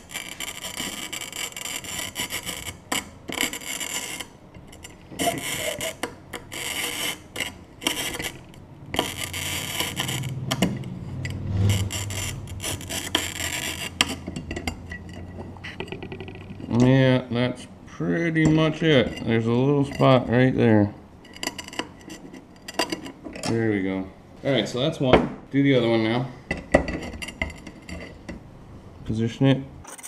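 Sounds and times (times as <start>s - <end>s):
glass cutter scoring a bottle: 0.0s - 16.6s.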